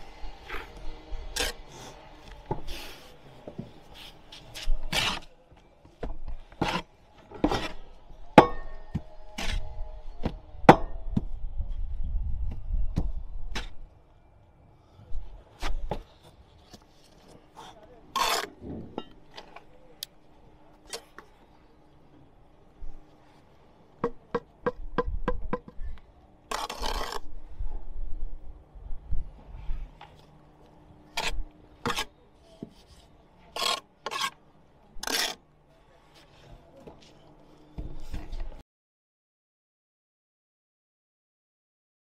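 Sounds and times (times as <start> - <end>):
trowel scraping and tapping bricks: 15.6 - 19.7, 24.0 - 27.3, 31.1 - 34.4, 35.0 - 35.4.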